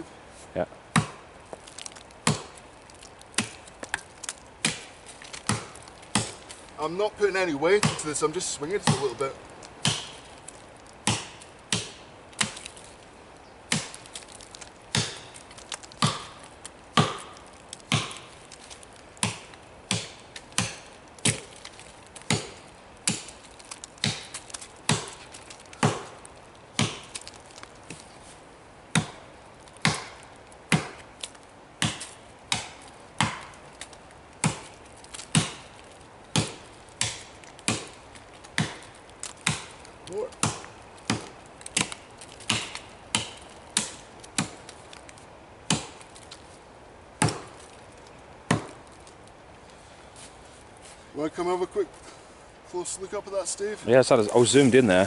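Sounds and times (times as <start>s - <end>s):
axe chopping log: 0.9s - 1.6s, 2.2s - 6.6s, 7.5s - 12.8s, 13.7s - 27.4s, 28.9s - 45.0s, 45.6s - 46.4s, 47.2s - 47.7s, 48.4s - 49.0s.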